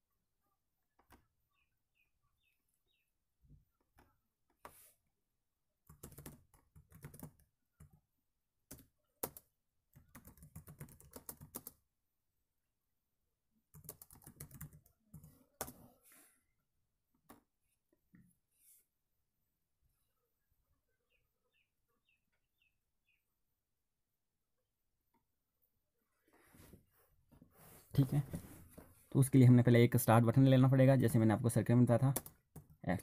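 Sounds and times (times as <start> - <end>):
typing on computer keyboard: 5.9 - 8.0, 8.7 - 11.8, 13.7 - 15.8, 32.1 - 32.8.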